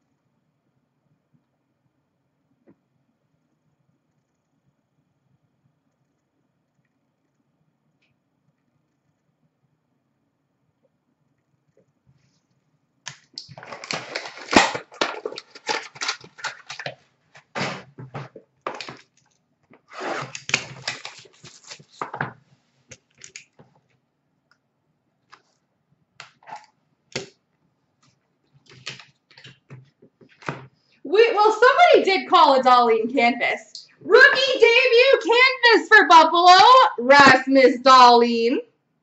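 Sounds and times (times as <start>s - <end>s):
plastic packaging rustling: 13.4s - 19.2s, 19.8s - 22.4s.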